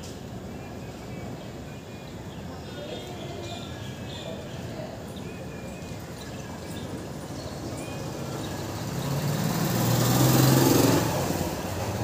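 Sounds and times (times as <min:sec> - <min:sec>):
vehicle engine passing by: 0:08.1 - 0:12.0.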